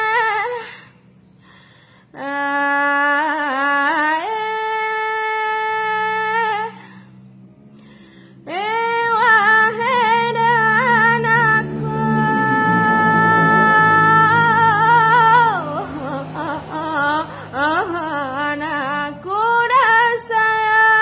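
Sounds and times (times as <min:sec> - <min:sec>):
low steady backing sound: 0:00.0 - 0:21.0.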